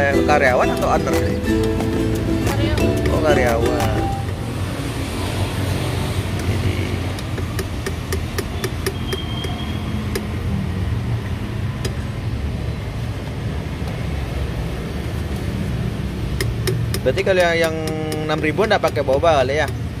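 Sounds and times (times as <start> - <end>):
street traffic rumble: 0.0 - 20.0
metal ladle clicking against cup: 6.4 - 10.3, 16.4 - 19.9.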